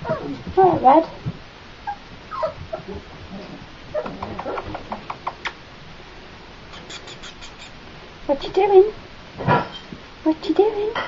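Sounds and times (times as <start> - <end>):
puppy yip: 1.9 - 2.6
puppies scrabbling on wood: 2.4 - 5.6
claws tapping and scratching: 4.0 - 5.6.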